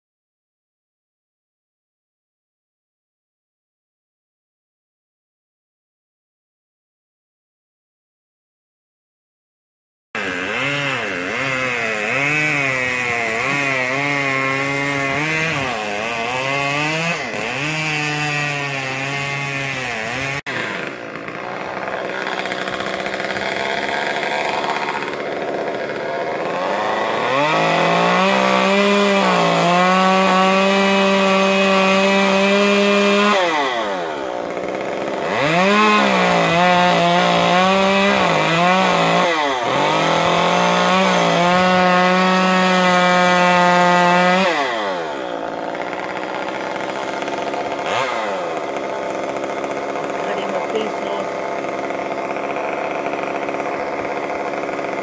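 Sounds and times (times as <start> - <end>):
chainsaw engine revving: 10.2 - 55.0.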